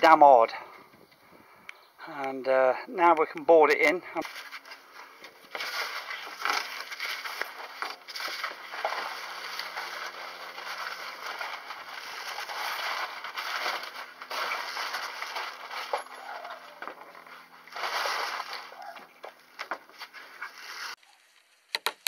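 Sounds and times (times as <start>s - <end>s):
roofing felt crackling rustle: 4.2s - 21.7s.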